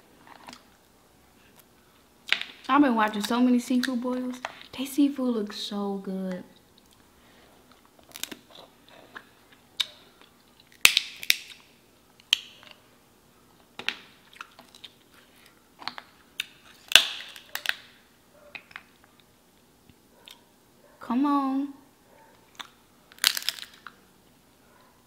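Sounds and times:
chewing and mouth smacks: 14.2 - 16.8, 22.5 - 22.8.

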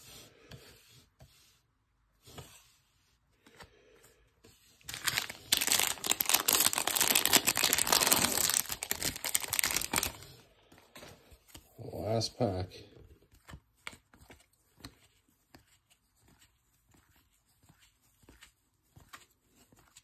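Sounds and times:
foil wrapper tearing and crinkling: 4.9 - 10.3.

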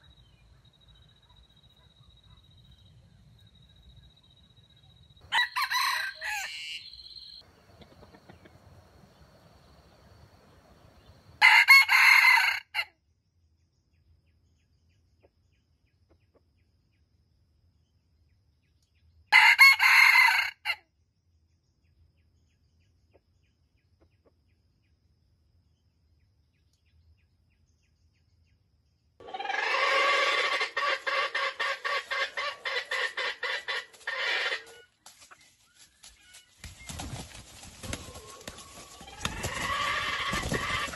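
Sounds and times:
rooster crowing: 5.2 - 7.4, 11.4 - 12.9, 19.4 - 20.8, 29.2 - 34.8, 38.0 - 40.9.

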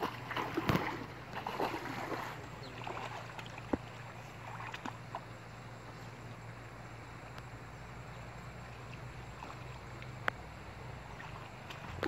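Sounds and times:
loud water splash: 0.0 - 3.7
people wading through water: 0.0 - 12.0.

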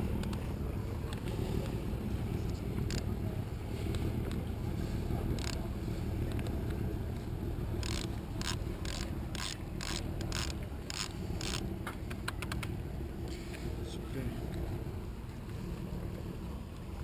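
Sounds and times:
steady low rumble: 0.0 - 17.0
winch ratchet clicks: 7.8 - 11.7.

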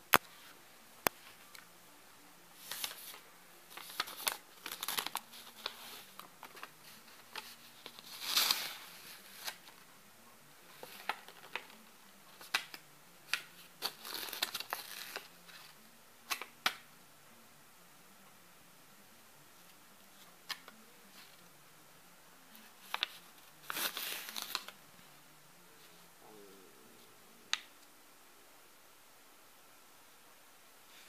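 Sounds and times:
paper crinkling and rustling: 2.6 - 9.8, 10.7 - 16.5, 22.6 - 24.8.

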